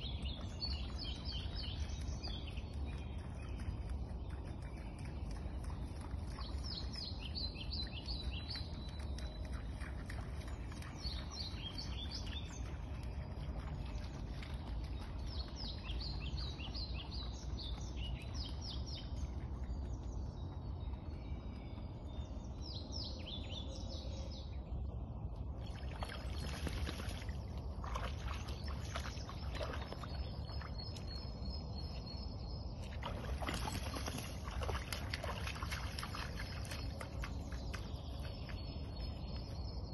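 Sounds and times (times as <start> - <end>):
songbird singing: 0.0 - 39.9
steady low rumble: 0.0 - 39.9
dog splashing through water: 0.2 - 18.5, 25.6 - 31.2, 32.8 - 39.2.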